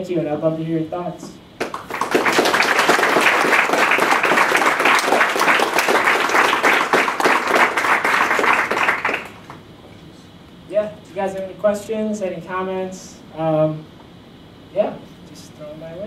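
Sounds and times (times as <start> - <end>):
audience applauding: 1.6 - 9.6.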